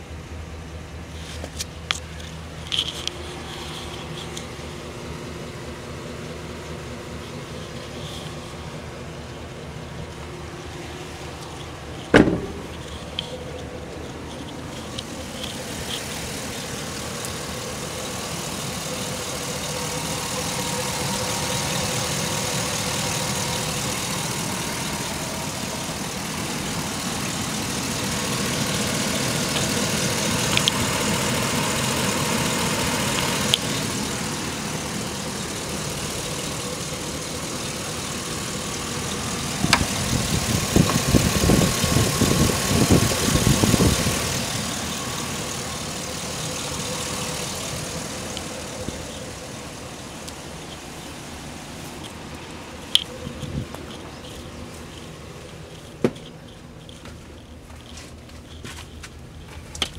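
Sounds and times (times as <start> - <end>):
engine idling: 0.0 - 59.9
sharp bang: 12.1 - 12.8.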